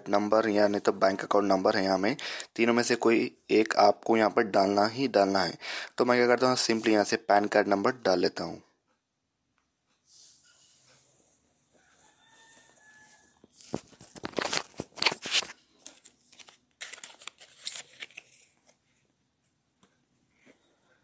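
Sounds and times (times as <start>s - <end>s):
faint rooster crow: 11.7s - 13.6s
paper or plastic crinkling: 13.5s - 18.8s.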